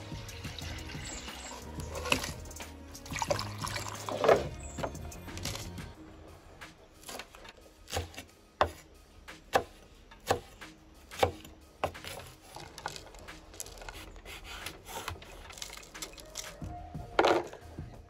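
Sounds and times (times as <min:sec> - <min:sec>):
knife chopping on wooden board: 0:07.0 - 0:13.0.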